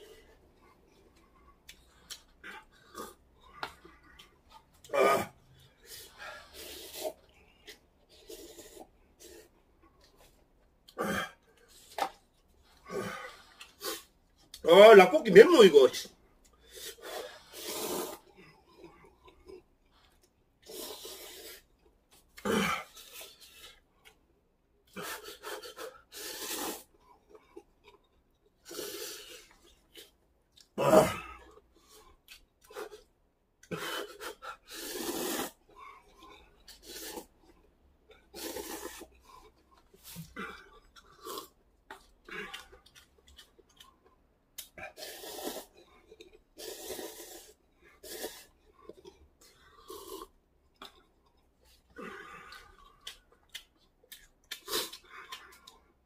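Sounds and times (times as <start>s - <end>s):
noodles being slurped: 0.0s - 10.4s, 16.5s - 24.2s, 24.9s - 56.0s.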